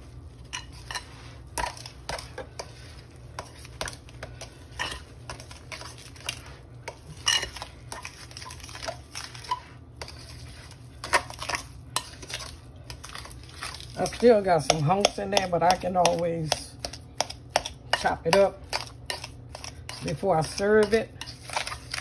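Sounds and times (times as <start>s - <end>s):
metal utensil scraping glass bowl: 0.5s - 2.8s.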